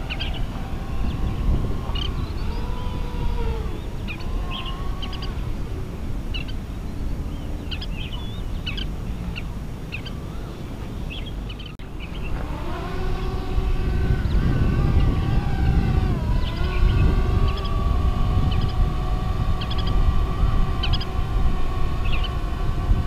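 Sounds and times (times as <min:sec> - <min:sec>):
bird chirps: 0:00.0 - 0:05.4, 0:06.3 - 0:14.4, 0:20.7 - 0:21.2
drone propellers humming: 0:00.0 - 0:23.0.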